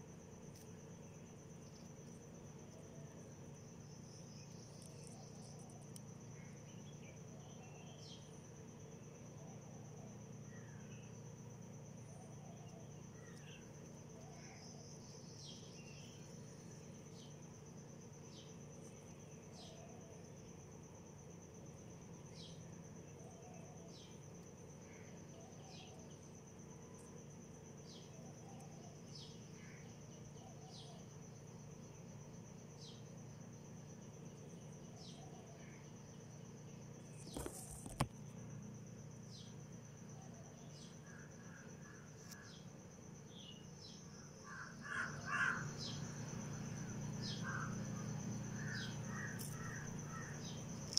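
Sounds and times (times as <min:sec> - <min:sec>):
faint high insect trill: 0:00.0 - 0:50.9
small bird chirping: 0:37.0 - 0:38.1
crows cawing: 0:44.5 - 0:45.7.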